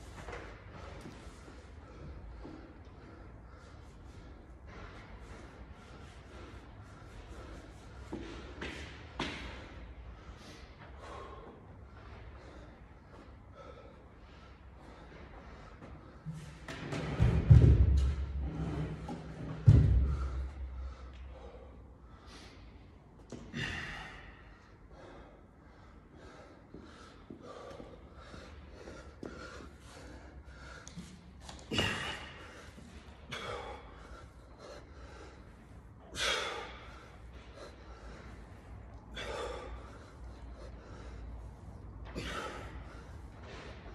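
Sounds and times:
man gasping for breath: 10.2 - 16.4, 19.9 - 43.9
heavy thud: 16.8 - 18.5, 19.5 - 20.5.

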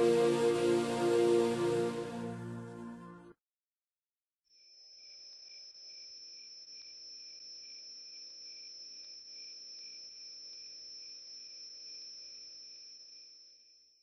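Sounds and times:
crickets trilling: 4.6 - 14.0.

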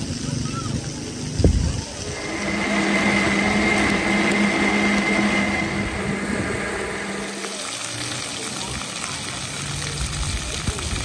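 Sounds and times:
electric blender running: 1.8 - 8.7.

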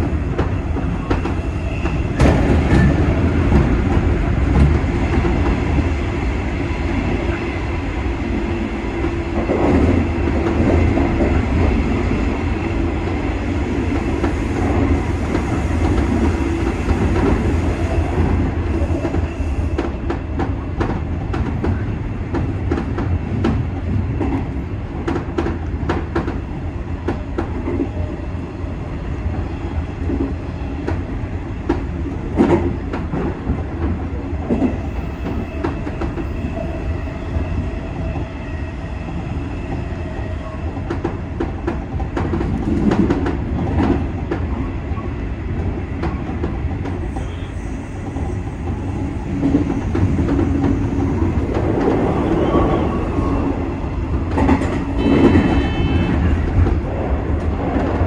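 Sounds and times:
electric train rumbling: 0.0 - 58.0.

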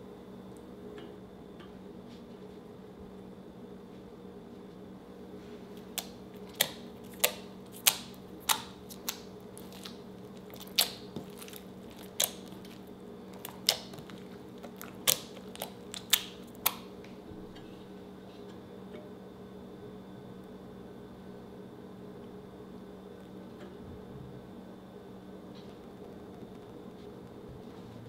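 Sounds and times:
steady low hum: 0.0 - 28.0
slime popping and clicking: 5.8 - 16.9.

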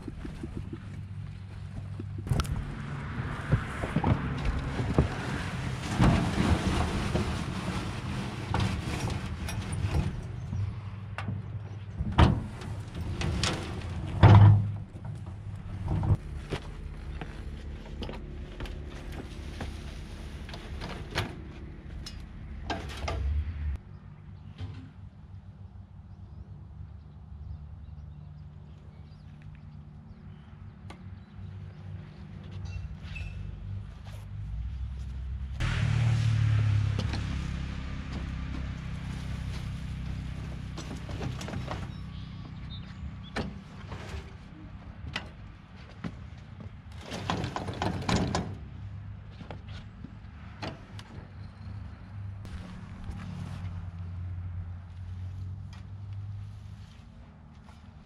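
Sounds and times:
wheelbarrow rolling on wooden ramp: 0.0 - 21.7, 37.0 - 44.5, 45.8 - 49.7
knocks and scrapes: 0.0 - 23.8, 35.6 - 51.4
compost thudding: 2.2 - 10.8
wheelbarrow knocking and rattling: 3.4 - 10.8, 12.0 - 17.2, 46.0 - 48.7
compost sliding out: 3.5 - 10.7, 12.0 - 18.0.

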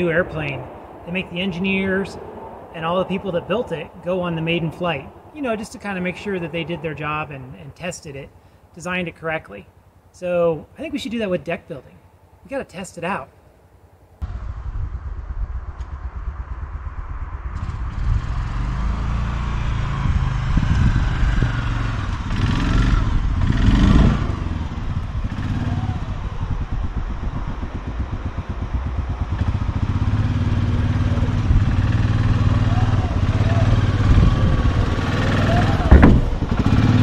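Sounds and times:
atv engine running: 14.2 - 37.0.

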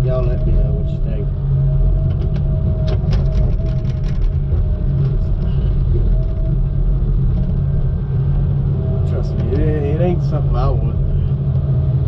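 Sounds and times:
diesel engine and hydraulics running: 0.0 - 12.0.

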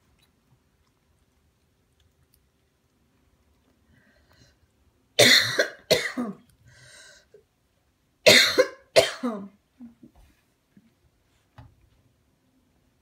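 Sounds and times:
small dog coughing: 5.2 - 6.4, 8.3 - 9.5.

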